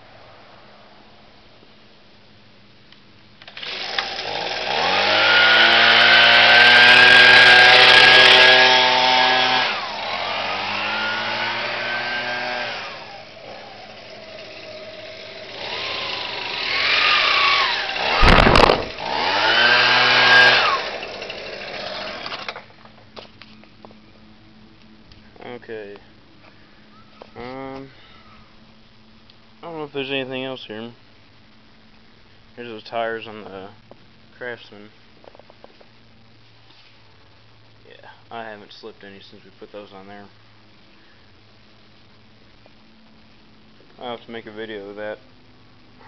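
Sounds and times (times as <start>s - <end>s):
leaf blower engine revving: 3.4s - 22.6s
loud burst of noise: 12.8s - 22.4s.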